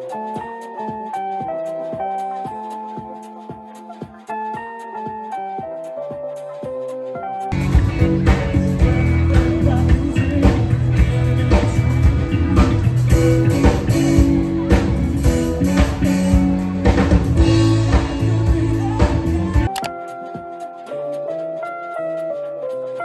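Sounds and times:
rock song with singing: 0:07.6 - 0:19.7.

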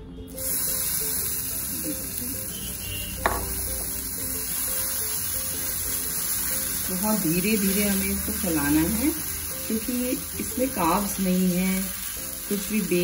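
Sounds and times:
batter sizzling in pan: 0:00.3 - 0:13.0.

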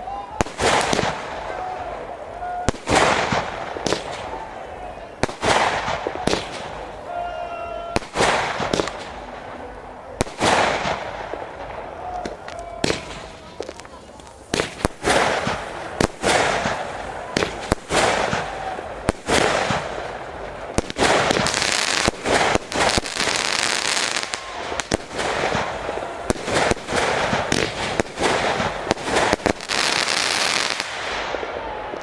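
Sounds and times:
continuous hiss: 0:00.0 - 0:32.0
firework shells bursting: 0:08.0 - 0:09.4, 0:10.2 - 0:31.4.

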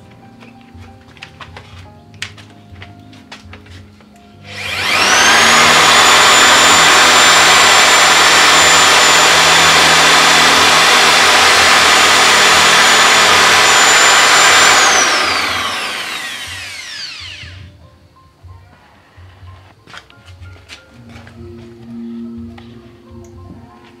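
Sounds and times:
power drill drilling into wood: 0:04.4 - 0:17.7.

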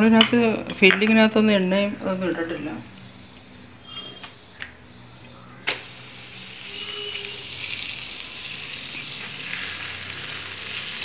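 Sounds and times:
frying sizzle: 0:05.7 - 0:11.0.

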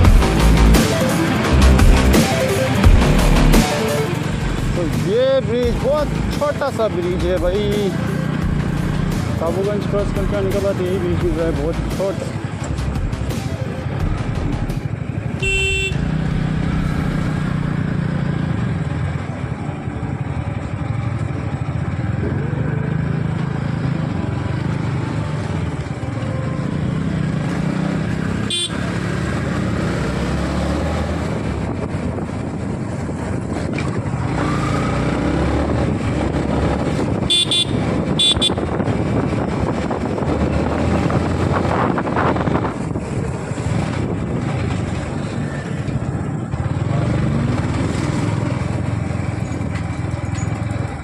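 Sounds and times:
motorcycle engine accelerating: 0:00.0 - 0:51.0
horn beep: 0:15.4 - 0:16.1, 0:28.4 - 0:28.9, 0:37.3 - 0:38.7.

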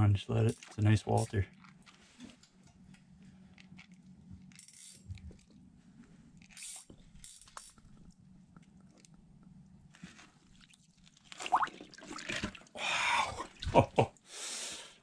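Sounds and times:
low steady hum: 0:00.0 - 0:14.3
faint crunching of slush ice: 0:09.9 - 0:12.8.

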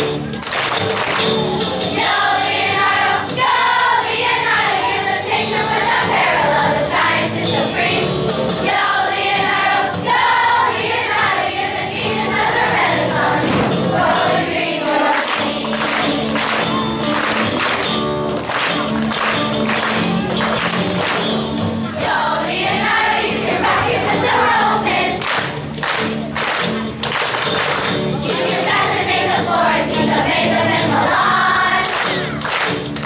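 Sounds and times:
instrumental accompaniment: 0:00.0 - 0:33.0
children's choir singing: 0:01.6 - 0:17.4, 0:21.2 - 0:25.6, 0:28.1 - 0:32.4.

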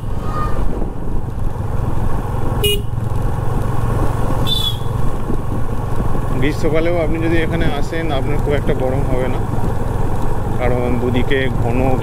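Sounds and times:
wind noise: 0:00.0 - 0:10.4
motorcycle engine running: 0:00.0 - 0:12.0
horn toot: 0:02.6 - 0:02.9.

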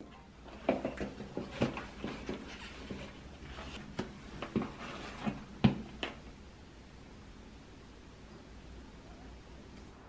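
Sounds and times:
footsteps on tiled floor: 0:00.4 - 0:05.8.

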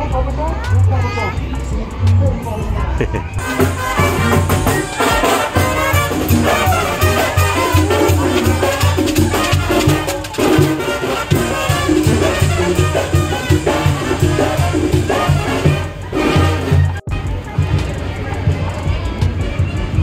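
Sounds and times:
marching brass band playing: 0:03.4 - 0:18.1.

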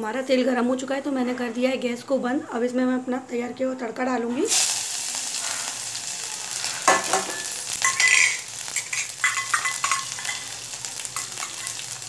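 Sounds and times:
spices sizzling in hot oil: 0:04.4 - 0:12.0
utensil scraping metal pan: 0:06.6 - 0:10.6.

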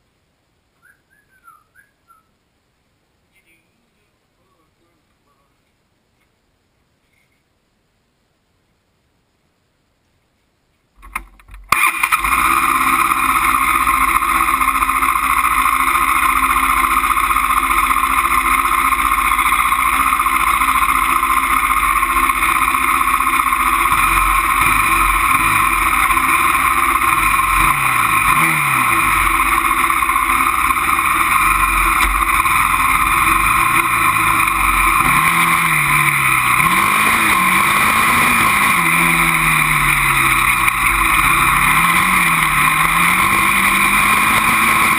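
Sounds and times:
quad engine revving: 0:11.7 - 0:44.9.

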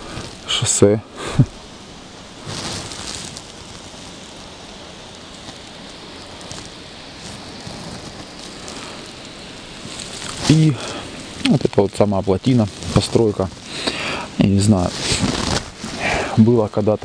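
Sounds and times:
outdoor background hiss: 0:00.0 - 0:17.0.

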